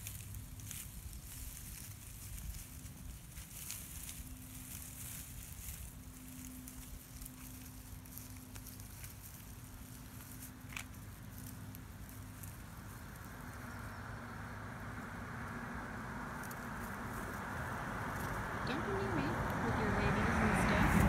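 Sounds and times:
light patter and rustling: 0:00.0 - 0:14.0.

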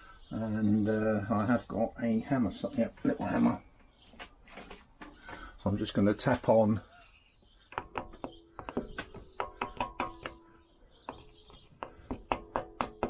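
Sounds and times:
small hammer tapping metal: 0:07.7 - 0:13.0.

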